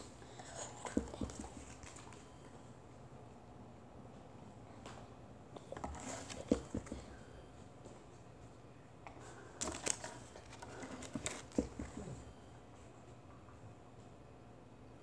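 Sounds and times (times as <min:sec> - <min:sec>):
cards and paper rustling: 0:05.6 - 0:07.1, 0:09.3 - 0:12.2.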